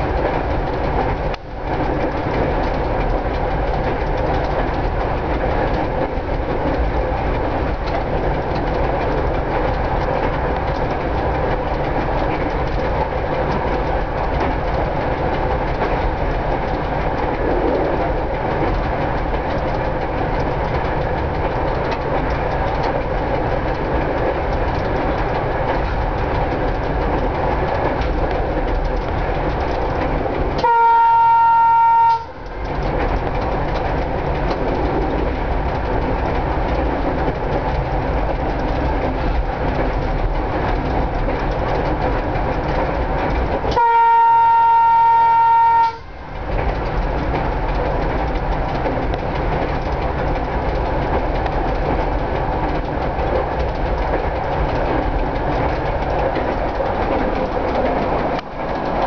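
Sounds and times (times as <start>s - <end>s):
railcar rumble: 0.0s - 59.0s
wheels clicking over rail joints: 0.0s - 59.0s
speedometer ticking: 0.1s - 30.7s, 32.1s - 43.8s, 45.8s - 59.0s
train horn blast: 30.6s - 32.4s, 43.7s - 46.1s.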